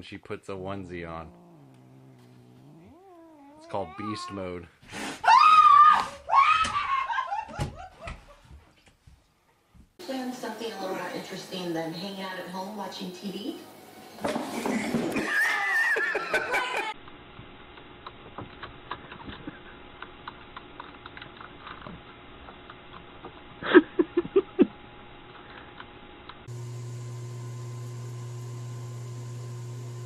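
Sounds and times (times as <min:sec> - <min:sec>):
steady low hum: 0:00.4 - 0:04.0.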